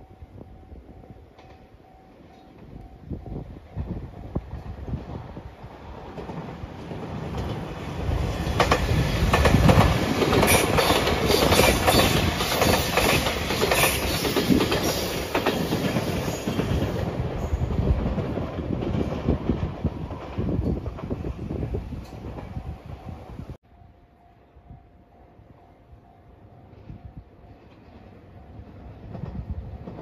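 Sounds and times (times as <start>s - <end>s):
electric train passing: 0.0s - 30.0s
wheels clicking over rail joints: 5.9s - 21.3s.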